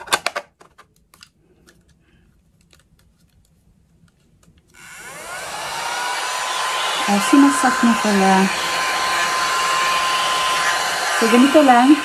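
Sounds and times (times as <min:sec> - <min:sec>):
small vacuum motor whirring: 0:04.8 - 0:12.0.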